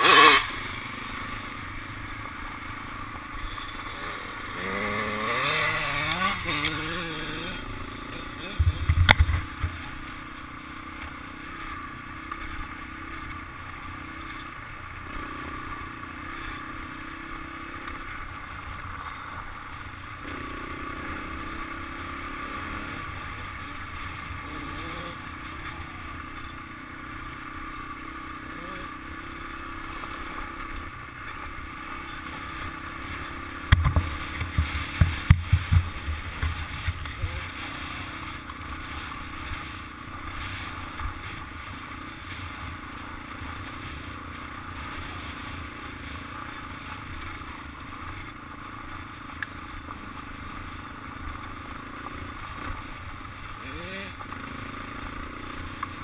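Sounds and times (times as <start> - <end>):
dirt bike engine running: 0.0 - 56.0
wind rumble on microphone: 8.5 - 9.8.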